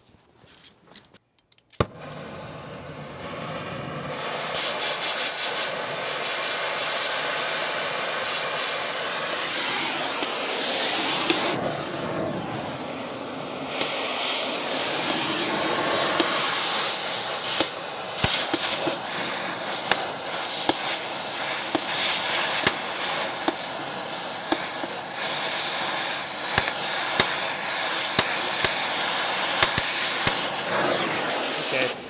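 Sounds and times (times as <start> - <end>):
cutting torch hissing: 1.9 - 32.0
sharp crackling pops: 9.2 - 11.7, 13.7 - 31.1.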